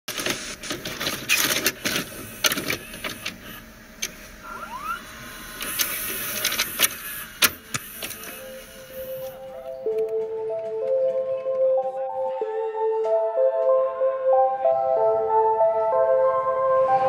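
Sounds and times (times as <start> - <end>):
vcr mechanical clunks and clicks: 0.1 - 4.3, 5.6 - 8.4
short rising whine: 4.4 - 6.4.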